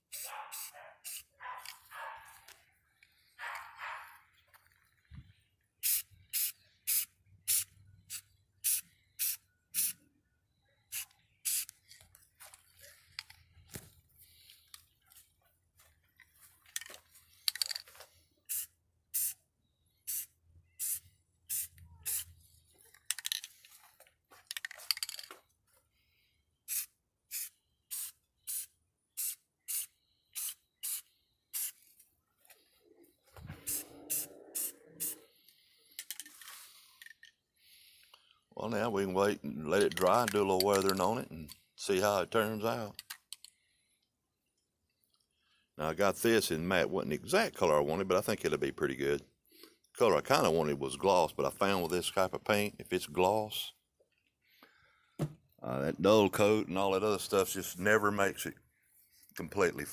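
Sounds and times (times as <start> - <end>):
spray can hissing: 0.0 - 1.3, 5.8 - 10.0, 10.9 - 11.7, 18.5 - 19.4, 20.1 - 22.3, 26.7 - 31.8, 33.6 - 35.2.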